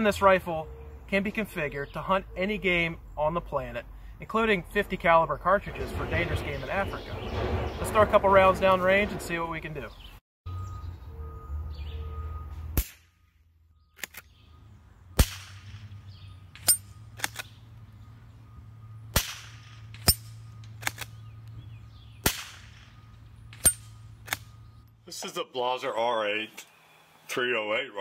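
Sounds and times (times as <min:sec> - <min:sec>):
rifle shots cracking: 0:19.1 - 0:21.2, 0:22.2 - 0:22.9.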